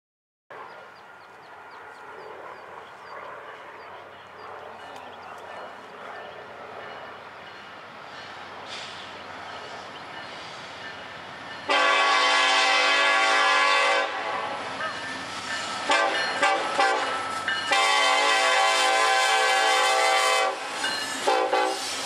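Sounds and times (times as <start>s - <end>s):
rumble of approaching train: 0.5s - 22.0s
locomotive air horn blasts: 11.7s - 14.7s, 15.8s - 22.0s.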